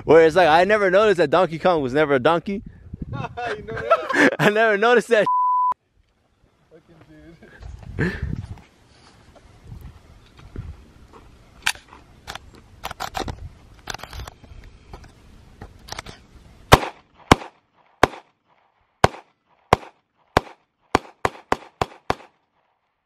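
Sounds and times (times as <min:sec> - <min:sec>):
handgun shots: 0:16.7 - 0:18.3, 0:19.0 - 0:22.4.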